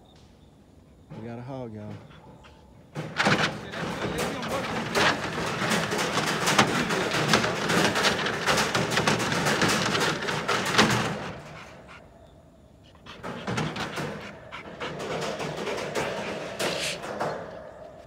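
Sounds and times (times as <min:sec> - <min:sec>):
dog panting: 0:01.9 - 0:12.2, 0:12.8 - 0:18.0
knocks: 0:02.9 - 0:12.0, 0:13.1 - 0:18.0.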